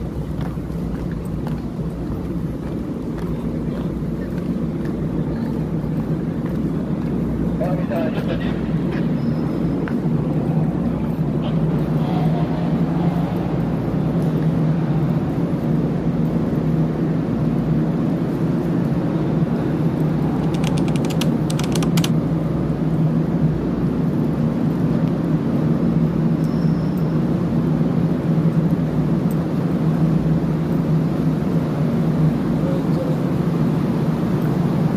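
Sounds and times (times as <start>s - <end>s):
low machinery drone: 0.0s - 34.9s
sharp clicks: 20.4s - 22.2s.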